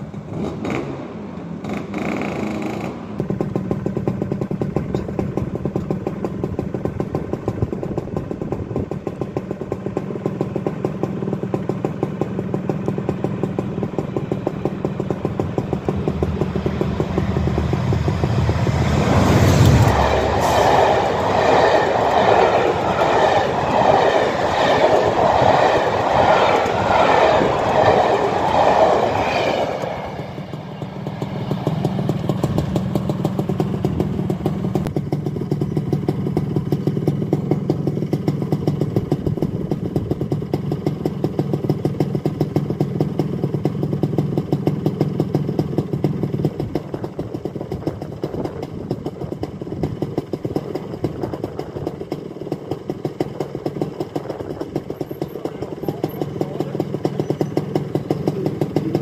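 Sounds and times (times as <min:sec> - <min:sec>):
low engine drone: 0:12.4 - 0:35.4.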